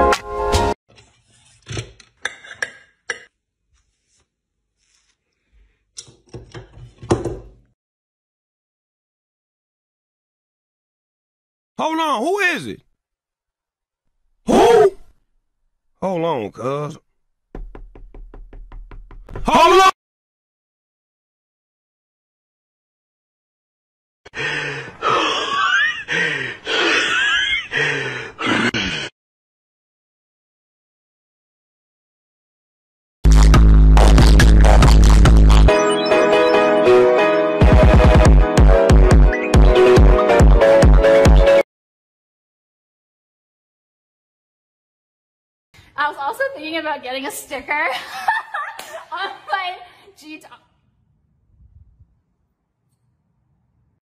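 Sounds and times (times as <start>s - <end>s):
knives scraping in wooden block: 0.9s - 2.8s
person breathing hard: 24.3s - 29.1s.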